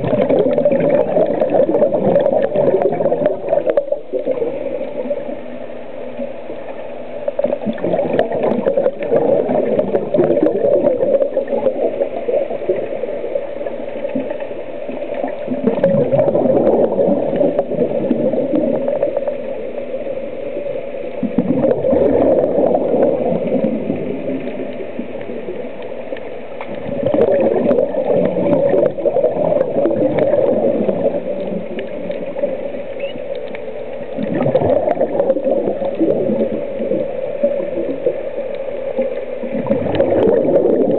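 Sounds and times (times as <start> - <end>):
underwater regulator bubbles gurgling: 0.0 - 40.9.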